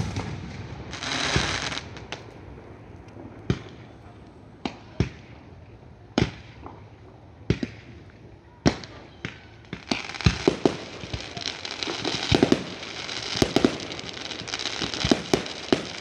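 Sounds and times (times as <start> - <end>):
sharp firework bangs: 0.0 - 2.2, 8.6 - 16.0
dense rush of fireworks: 0.0 - 16.0.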